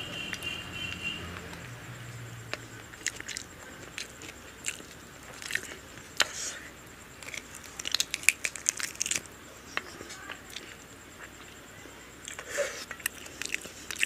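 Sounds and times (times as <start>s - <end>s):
chewing and biting food: 2.5s - 6.4s, 7.1s - 9.3s, 12.2s - 14.0s.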